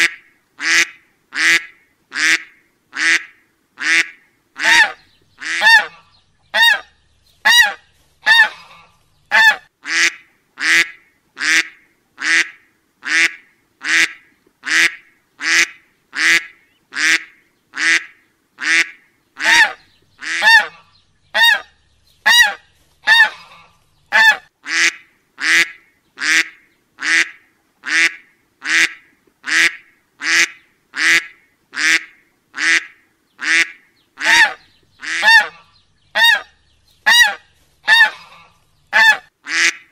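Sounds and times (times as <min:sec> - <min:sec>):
nasal duck-like honks: 0:22.3 - 0:36.5, 0:37.1 - 0:39.9.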